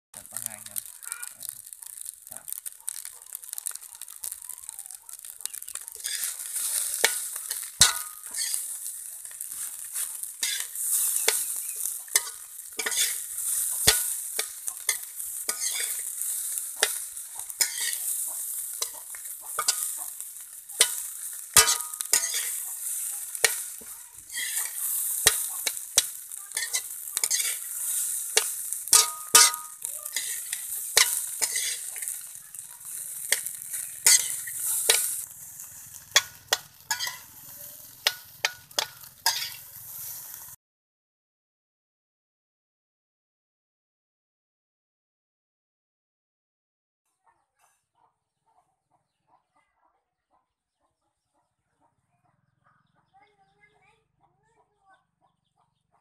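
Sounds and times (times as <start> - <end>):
rice sizzling in metal pan: 0.2 - 40.6
metal spoons scraping pan: 5.1 - 40.3
short metallic rings: 26.6 - 31.9, 36.2 - 37.3.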